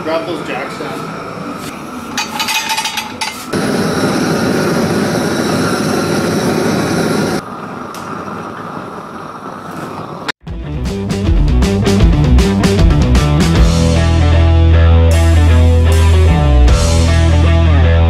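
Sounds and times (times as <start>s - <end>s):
propane torch burning: 3.2s - 10.4s.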